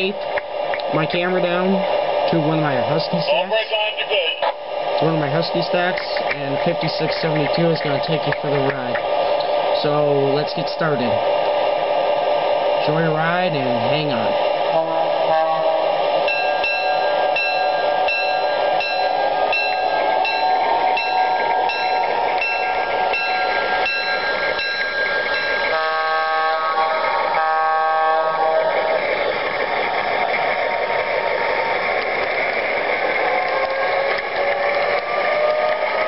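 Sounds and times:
engine and track noise: 0.0 - 36.0
locomotive horn blasts: 14.7 - 24.8, 25.4 - 28.9, 33.5 - 36.0
locomotive bell ringing: 15.1 - 32.0.

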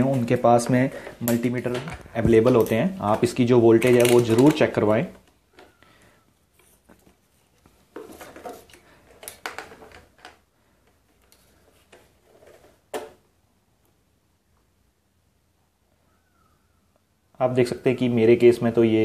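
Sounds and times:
plastic clicks and knocks: 8.0 - 10.4.

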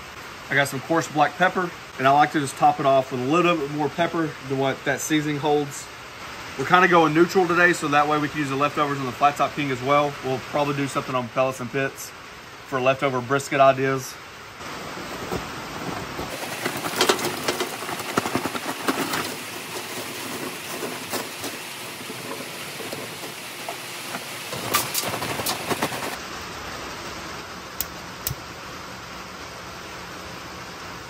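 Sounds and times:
heavy rain hissing: 0.0 - 31.0
charcoal clattering onto metal grate: 15.2 - 26.2.

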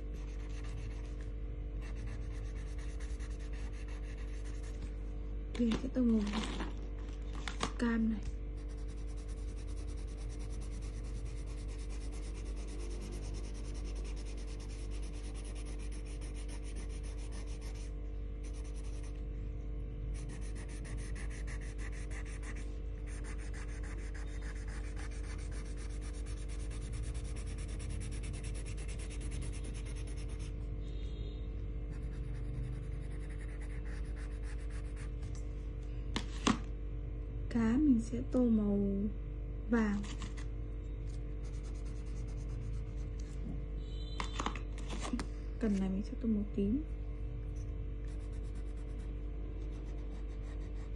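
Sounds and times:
colouring tool scribbling on paper: 0.0 - 1.2, 1.8 - 4.8, 8.6 - 19.2, 20.2 - 30.6, 31.9 - 35.1, 41.4 - 43.0, 48.1 - 50.9.

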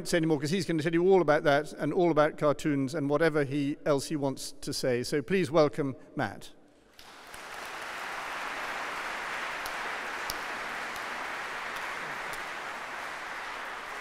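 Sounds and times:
audience applauding: 7.0 - 14.0
sharp single claps: 7.0 - 14.0.

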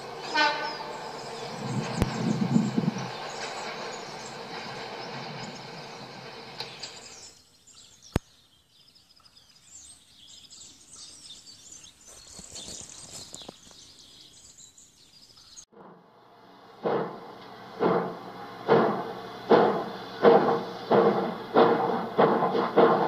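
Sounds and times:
passing train: 0.0 - 7.4, 15.8 - 23.0
birds chirping: 0.0 - 15.7, 16.8 - 23.0.

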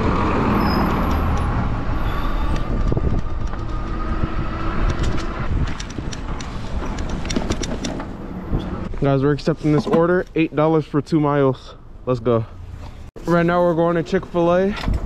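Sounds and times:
traffic noise: 0.0 - 15.0
wind on microphone: 1.5 - 7.8.

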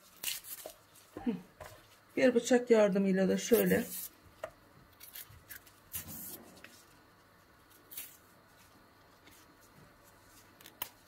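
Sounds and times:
knife scraping vegetable skin: 0.0 - 1.2, 3.4 - 4.2, 5.0 - 6.8, 7.8 - 8.3.

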